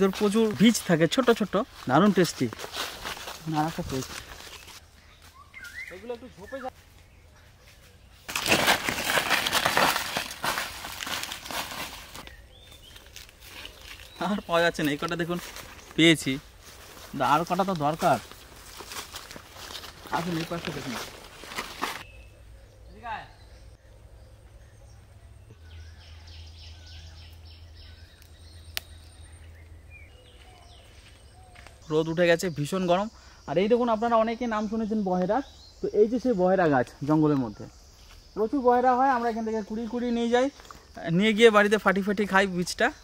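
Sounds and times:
dry leaves crunching: 0:00.0 - 0:22.1
birds chirping: 0:00.0 - 0:43.0
whistled bird notes: 0:05.0 - 0:08.0.

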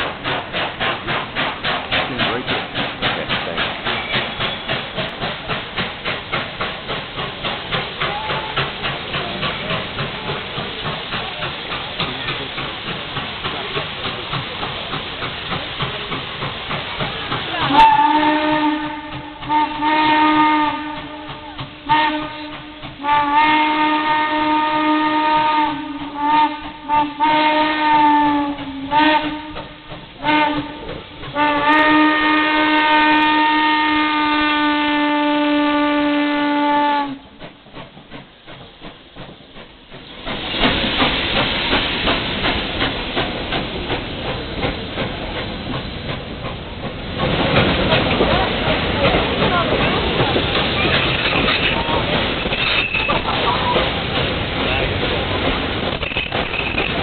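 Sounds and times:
exhaust rush and steam hiss: 0:00.0 - 0:34.4, 0:37.0 - 0:57.0
steam locomotive exhaust chuffing: 0:00.0 - 0:57.0
steam whistle blasts: 0:17.7 - 0:37.3.

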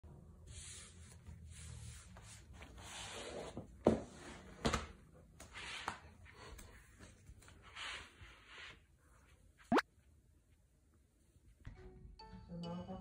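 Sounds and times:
carpet tiles sliding on floor: 0:05.4 - 0:09.4.

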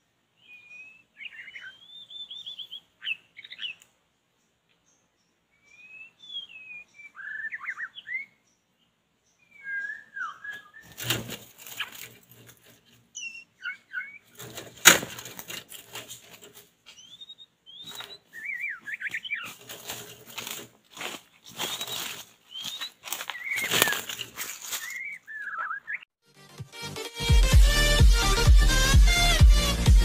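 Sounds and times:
bird singing whistled phrases: 0:00.4 - 0:03.8, 0:05.6 - 0:08.4, 0:09.4 - 0:10.9, 0:13.2 - 0:14.2, 0:17.0 - 0:19.5, 0:21.6 - 0:24.0, 0:24.8 - 0:26.1
wing flapping and rustling: 0:10.8 - 0:13.2, 0:14.2 - 0:17.0, 0:17.8 - 0:25.2.

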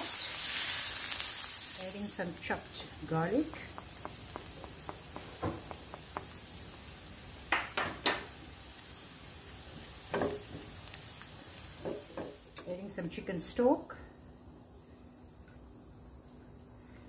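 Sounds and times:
onion sizzling in oil: 0:00.0 - 0:13.8
spoon knocking and scraping pan: 0:03.3 - 0:06.9, 0:07.5 - 0:08.3.

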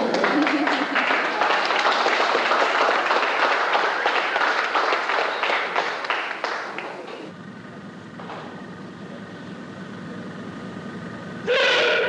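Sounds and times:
audience applause: 0:00.0 - 0:07.3.

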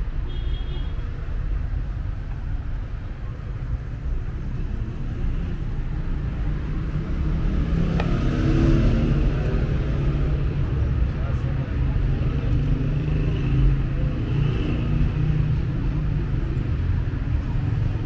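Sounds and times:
traffic rumble: 0:00.0 - 0:18.0
vehicle passing nearby: 0:04.4 - 0:15.2.

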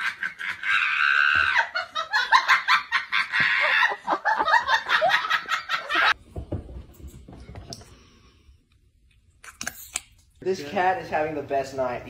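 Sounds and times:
person laughing: 0:00.0 - 0:06.2.

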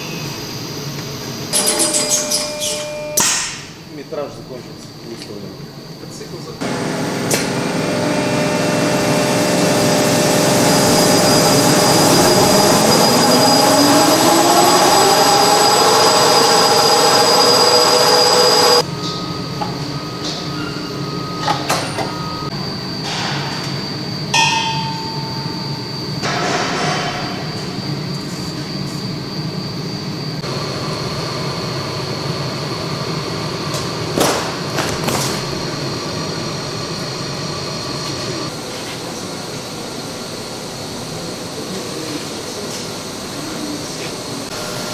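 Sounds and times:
machine whine rising in pitch: 0:00.0 - 0:03.5, 0:06.6 - 0:34.2, 0:35.4 - 0:44.9
machinery running: 0:00.0 - 0:04.4, 0:05.7 - 0:44.9.

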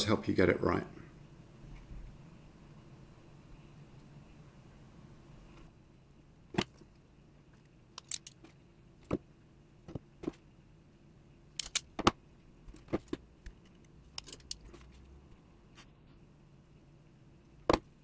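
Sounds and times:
crimping tool clicking: 0:08.0 - 0:08.4, 0:11.6 - 0:12.0.

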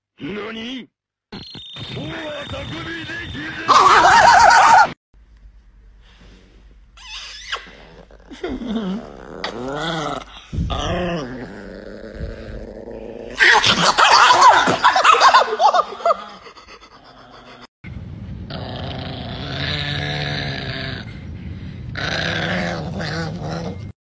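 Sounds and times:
small dog growling: 0:07.5 - 0:13.8, 0:18.5 - 0:21.2, 0:21.9 - 0:24.0.

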